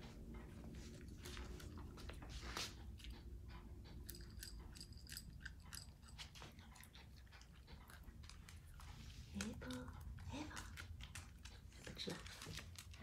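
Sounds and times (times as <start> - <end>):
dog crunching food: 3.0 - 13.0.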